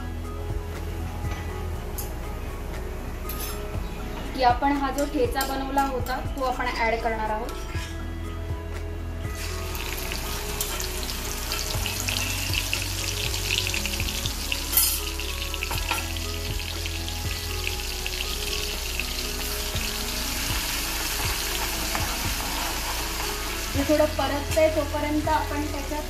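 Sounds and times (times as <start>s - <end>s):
chilli and garlic sizzling in oil: 9.4s - 26.0s.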